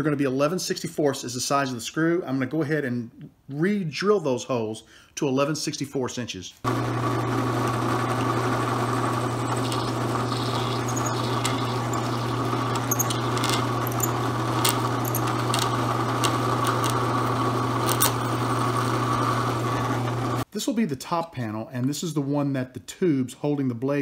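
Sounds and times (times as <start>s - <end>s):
drill press drilling plastic: 6.7s - 20.4s.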